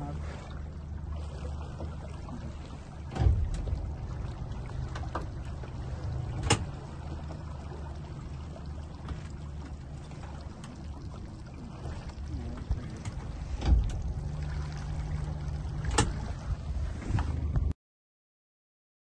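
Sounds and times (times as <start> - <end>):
boat engine idling: 0.0 - 17.7
knocks on boat: 3.0 - 7.4, 11.8 - 17.7.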